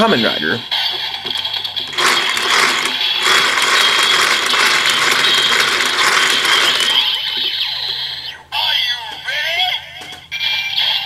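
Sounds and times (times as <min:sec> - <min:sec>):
toy crank ratcheting clatter: 0:01.3 - 0:07.2.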